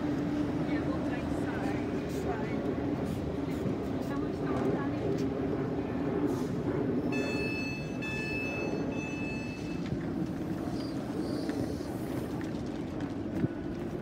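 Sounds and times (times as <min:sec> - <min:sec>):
train low rumble: 0:00.0 - 0:14.0
train high whine: 0:05.5 - 0:12.2.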